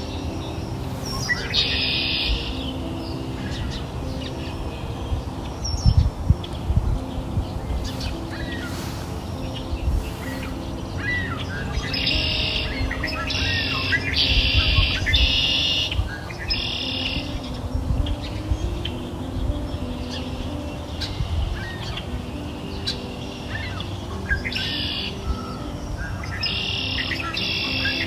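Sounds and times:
birds chirping and trilling: 0.0s - 28.0s
soft background music: 0.0s - 28.0s.

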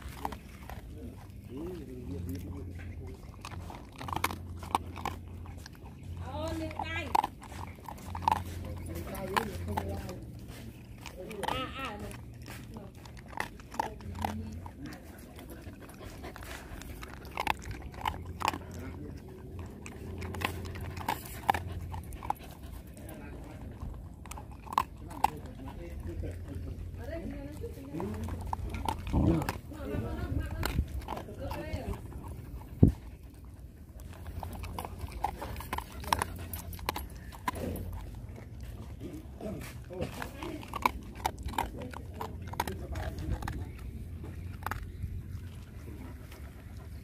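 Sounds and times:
puppy crunching kibble: 0.0s - 47.0s.

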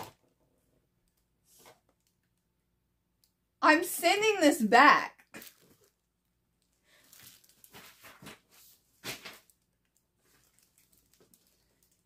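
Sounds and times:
plastic wrap crinkling: 5.3s - 12.0s.

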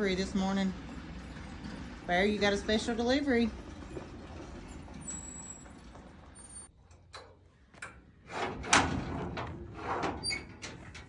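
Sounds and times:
trailer gate clanking: 4.6s - 11.0s.

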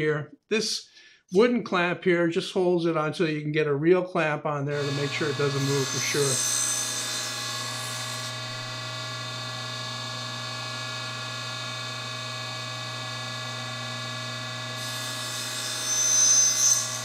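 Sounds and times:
table saw blade spinning: 4.8s - 17.0s.

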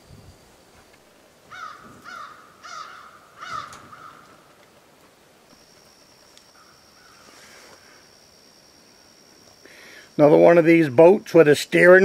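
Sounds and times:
crow cawing: 1.5s - 4.5s, 6.6s - 7.4s.

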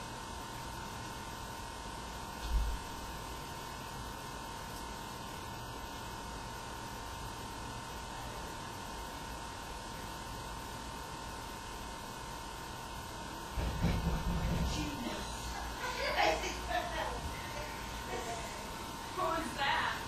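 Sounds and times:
microphone hiss: 13.6s - 20.0s.

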